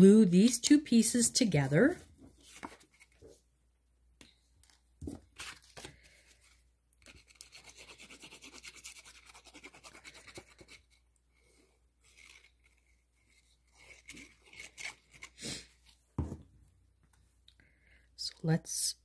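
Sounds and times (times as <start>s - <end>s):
paper handling: 2.2s - 3.4s.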